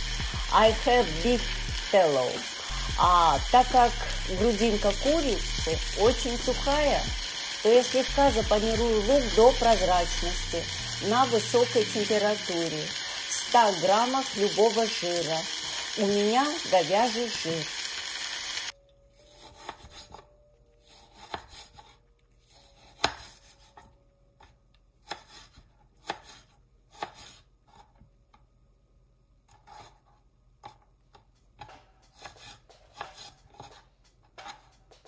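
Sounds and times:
onions sizzling: 0.0 - 18.8.

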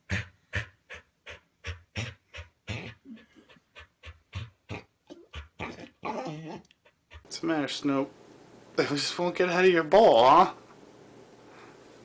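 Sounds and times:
dog panting: 0.0 - 7.3
dog whining: 1.6 - 7.3.

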